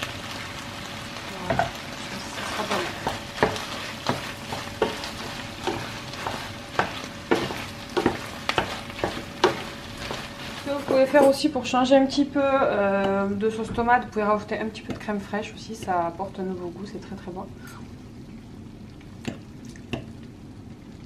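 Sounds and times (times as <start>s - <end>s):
pasta sizzling in frying pan: 0.0s - 21.0s
wooden spoon scraping pan: 1.5s - 11.5s.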